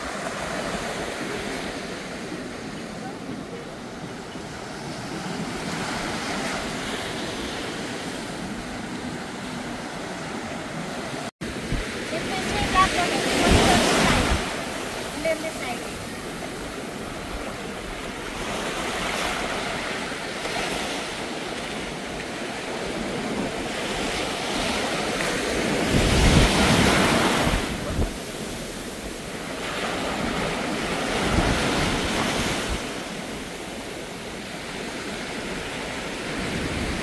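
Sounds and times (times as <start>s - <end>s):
waves breaking on beach: 0.0s - 37.0s
wind rumbling on microphone: 22.7s - 29.3s.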